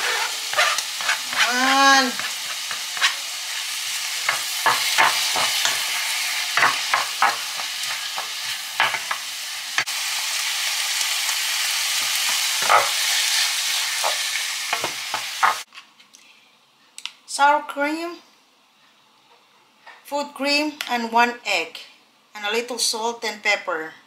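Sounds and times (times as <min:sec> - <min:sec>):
wooden spatula scraping pan: 0:00.0 - 0:03.7
vegetables sizzling in frying pan: 0:00.0 - 0:15.7.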